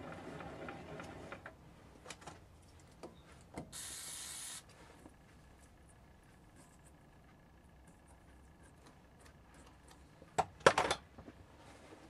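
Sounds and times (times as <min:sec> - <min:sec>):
steady hum: 0:00.0 - 0:12.0
hiss burst: 0:03.7 - 0:04.7.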